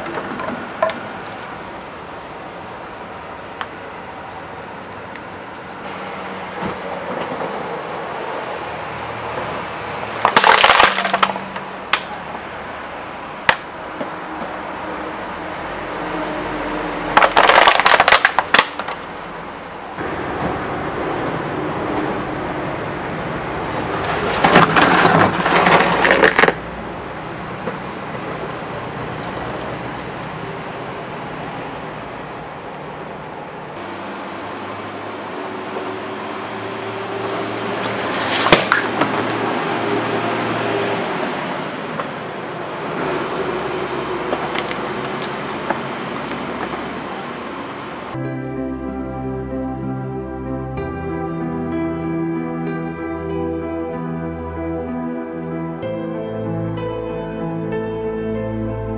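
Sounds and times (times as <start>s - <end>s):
bottle crunching under tyre: 10.2s - 12.1s, 17.2s - 19.4s, 24.3s - 26.7s, 37.6s - 39.4s, 44.3s - 46.8s
sharp cracks: 10.2s - 12.2s, 17.1s - 19.4s, 37.6s - 39.4s, 44.3s - 46.4s.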